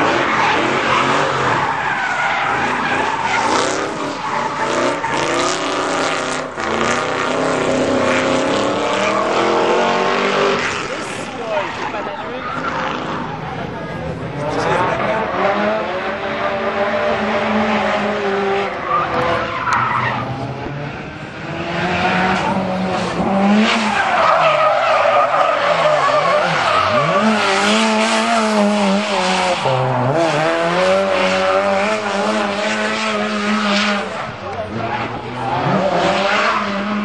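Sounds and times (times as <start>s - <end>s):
car engines revving hard: 0.0s - 37.0s
tyres skidding and squealing: 0.0s - 37.0s.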